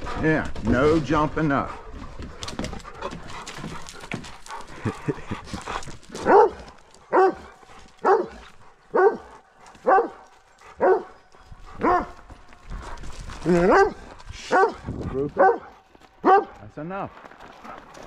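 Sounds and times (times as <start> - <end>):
dog barking: 6.1 - 10.2, 10.8 - 11.2, 11.8 - 12.2, 13.6 - 14.8, 15.4 - 16.6.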